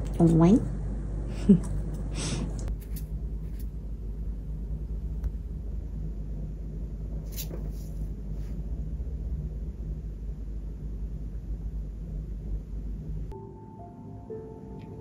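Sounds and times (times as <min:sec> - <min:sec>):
low rumble of handling noise: 0:00.0 - 0:13.4
faint brushing: 0:07.2 - 0:08.6
plucked-string music: 0:13.3 - 0:15.0.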